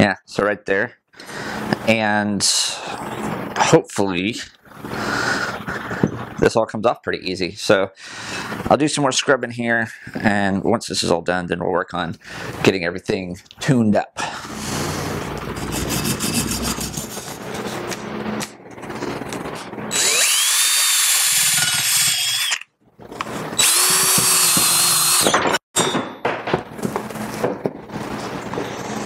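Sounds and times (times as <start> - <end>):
wire brush scrubbing metal: 15.5 - 17.9
cordless drill whining: 19.9 - 22.7, 23.6 - 25.4.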